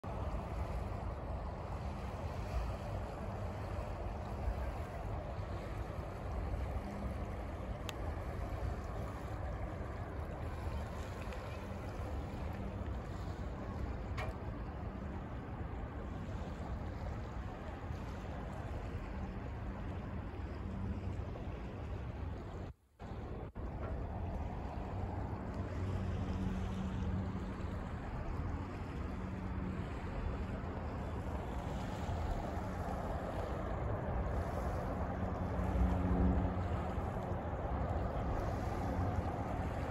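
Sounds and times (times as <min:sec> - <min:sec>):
low engine drone: 0:00.0 - 0:39.9
outdoor background noise: 0:00.0 - 0:39.9
wind buffeting a microphone: 0:00.0 - 0:39.9
small click: 0:14.1 - 0:14.4.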